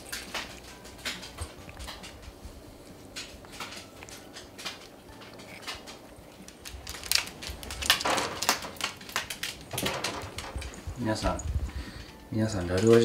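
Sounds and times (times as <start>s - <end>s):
dog claws tapping on wooden floor: 3.1s - 13.0s.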